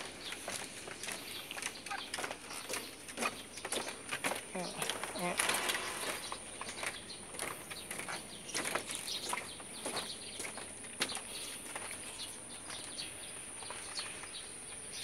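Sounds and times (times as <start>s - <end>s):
dog claws clicking on wooden deck: 0.3s - 12.1s.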